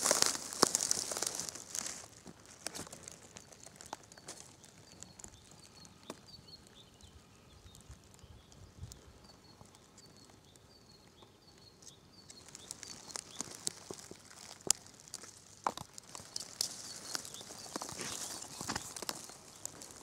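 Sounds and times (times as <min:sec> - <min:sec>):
footsteps crunching dry leaves: 0:00.0 - 0:04.5, 0:12.4 - 0:20.0.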